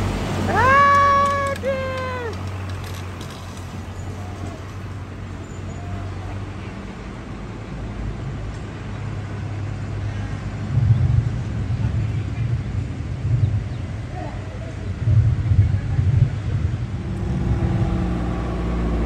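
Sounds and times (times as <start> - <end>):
truck engines droning: 0.0 - 19.0
pickup accelerating: 16.9 - 19.0.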